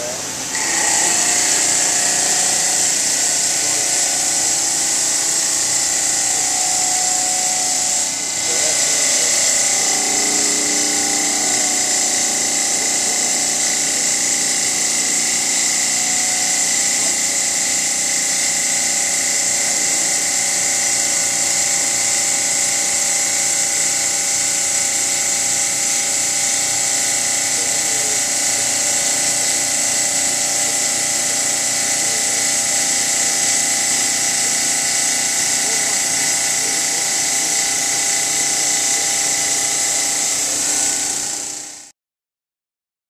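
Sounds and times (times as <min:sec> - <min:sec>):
saw blade cutting stone whine: 0:00.0 - 0:41.9.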